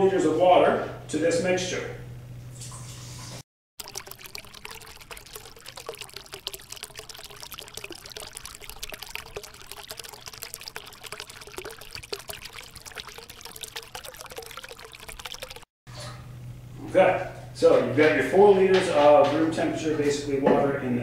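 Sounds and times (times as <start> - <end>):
water pouring into a plastic bucket: 3.8 - 15.7.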